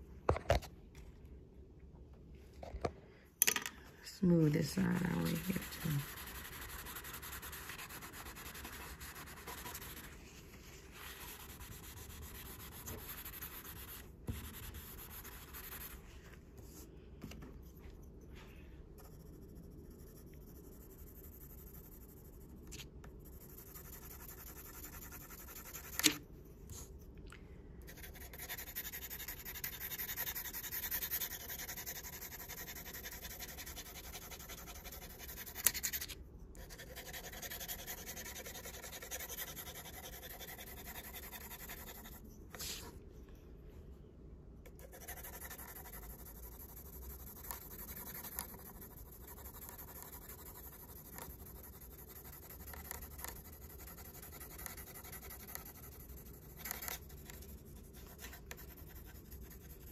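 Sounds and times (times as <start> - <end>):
pencil shading on paper: 4.3 - 16.0, 23.2 - 26.2, 27.9 - 42.9, 44.8 - 59.9.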